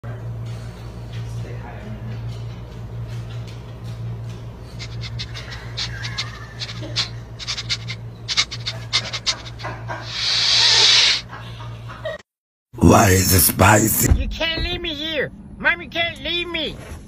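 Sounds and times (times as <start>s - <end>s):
steady low hum: 3.8s - 12.0s
dog sniffing and snuffling: 4.8s - 11.2s
loud hissing burst: 4.8s - 11.2s.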